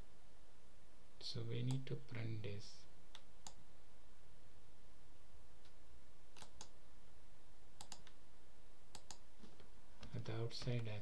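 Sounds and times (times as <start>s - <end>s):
mouse and keyboard clicks: 6.4s - 6.7s, 7.8s - 8.2s, 8.9s - 10.9s.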